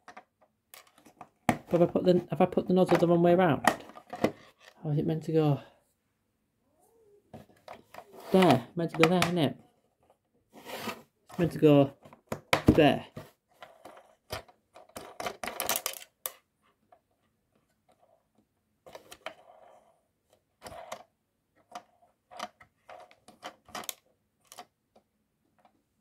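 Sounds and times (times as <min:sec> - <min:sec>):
fingers handling plastic toy: 0:13.2 - 0:25.8.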